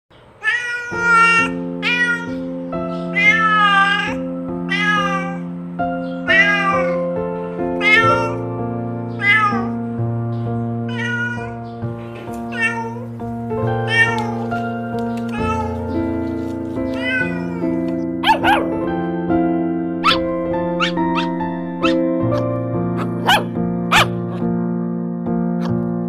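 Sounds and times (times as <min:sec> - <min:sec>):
kittens mewing: 0:00.4 - 0:05.5, 0:06.2 - 0:08.4, 0:09.2 - 0:09.8, 0:10.9 - 0:16.2, 0:16.8 - 0:18.8, 0:20.0 - 0:24.5
slow held chords music: 0:01.4 - 0:26.0.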